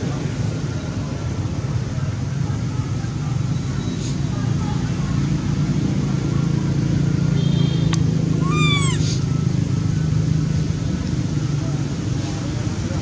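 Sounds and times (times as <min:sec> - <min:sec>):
macaque coo call: 0:08.4 - 0:09.3.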